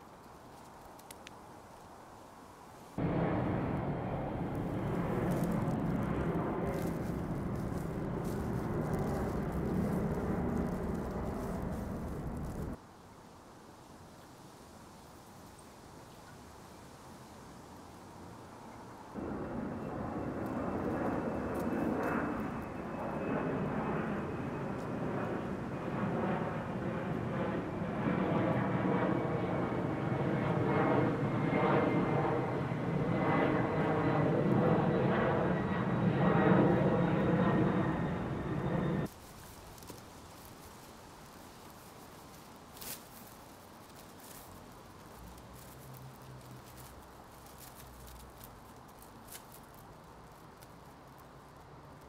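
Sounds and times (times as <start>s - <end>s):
airliner rumble overhead: 0.0s - 12.8s, 18.0s - 52.0s
low engine rumble: 3.0s - 12.8s.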